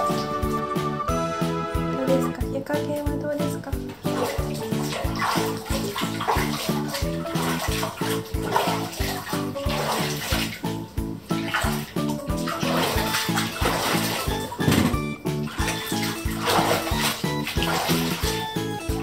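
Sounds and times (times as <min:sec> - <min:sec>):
water sloshing in a tub: 0:00.0 - 0:01.1, 0:01.7 - 0:19.0
music with a steady beat: 0:00.0 - 0:19.0.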